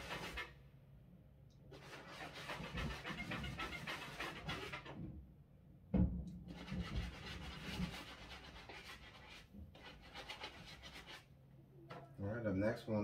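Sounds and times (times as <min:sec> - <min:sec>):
rubbing strokes on sneaker: 0:01.8 - 0:04.9, 0:06.5 - 0:11.3.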